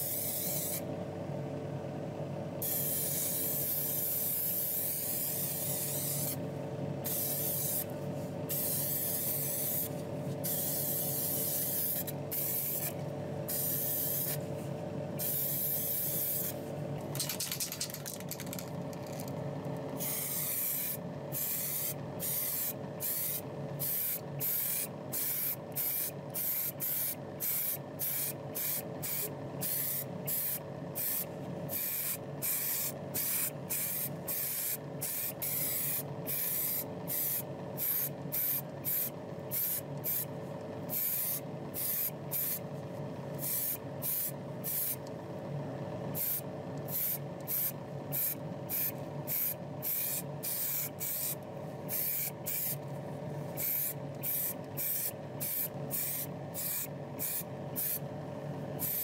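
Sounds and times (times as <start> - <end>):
steady mechanical hum: 0.0 - 59.0.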